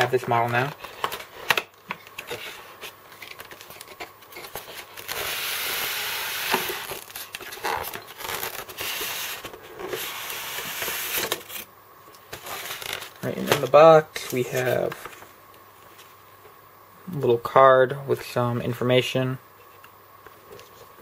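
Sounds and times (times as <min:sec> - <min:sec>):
packaging rustling: 0:06.7 - 0:10.0, 0:12.3 - 0:13.7.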